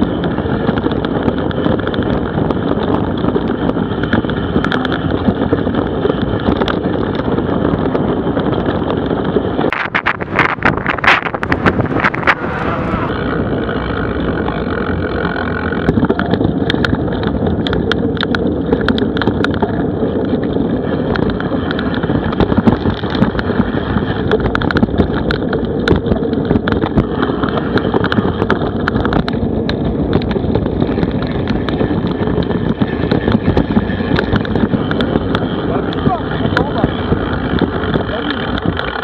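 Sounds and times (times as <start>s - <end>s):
bike clicks and rattles: 0.0s - 39.0s
steady rumble: 0.0s - 39.0s
wind buffeting microphone: 0.0s - 39.0s.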